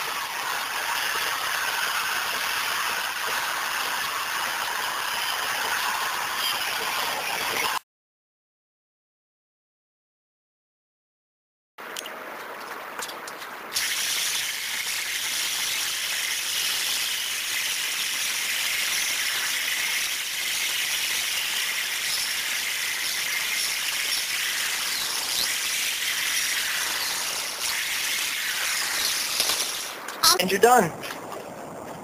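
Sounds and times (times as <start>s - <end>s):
cordless drill whirring: 13.8s - 29.9s.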